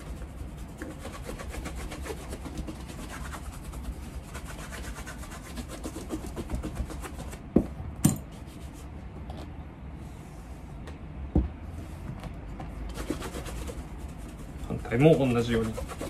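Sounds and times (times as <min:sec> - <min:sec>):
brush rubbing leather shoe: 0:00.0 - 0:07.5, 0:08.3 - 0:09.0, 0:12.9 - 0:16.0.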